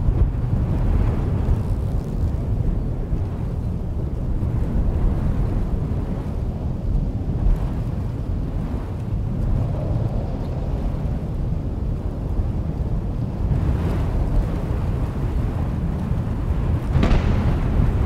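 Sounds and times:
wind rumble: 0.0 - 18.0
rolling thunder: 12.6 - 18.0.

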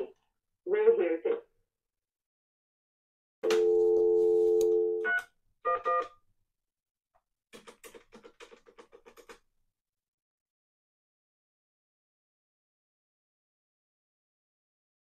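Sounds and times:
telephone dial tone: 3.4 - 6.1
keypad dialling beeps: 3.6 - 6.1.

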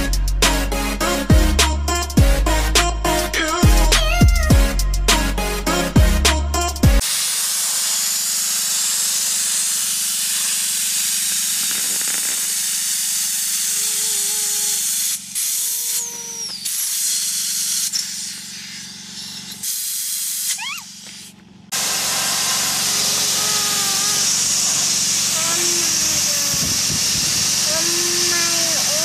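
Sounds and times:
low compressor hum: 0.0 - 7.0
compressed air hissing: 7.0 - 29.0.

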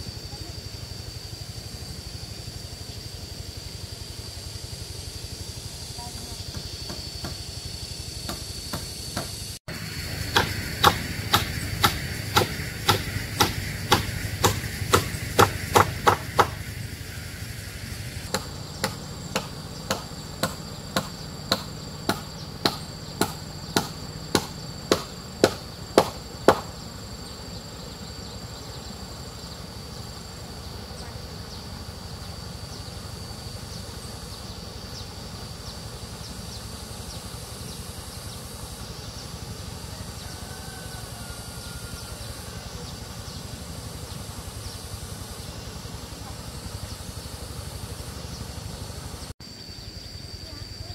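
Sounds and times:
insects trilling: 0.0 - 50.9
hand tool striking: 10.3 - 16.6, 18.3 - 26.7.

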